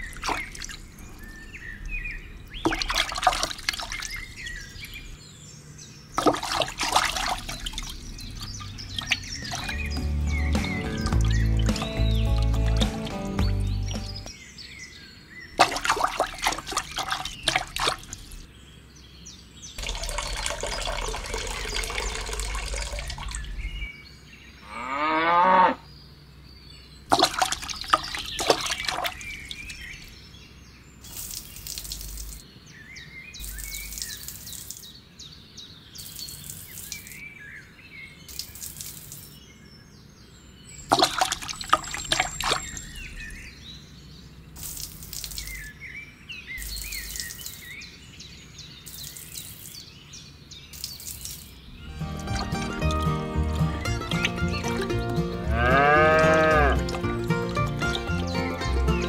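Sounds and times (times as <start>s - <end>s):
water splashing and trickling: 0.0s - 14.4s, 15.4s - 18.6s, 19.6s - 24.0s, 27.0s - 39.7s, 40.6s - 59.0s.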